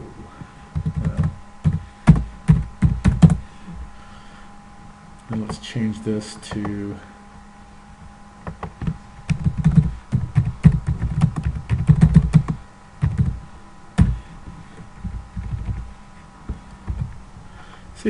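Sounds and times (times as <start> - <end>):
typing on computer keyboard: 8.5 - 13.4.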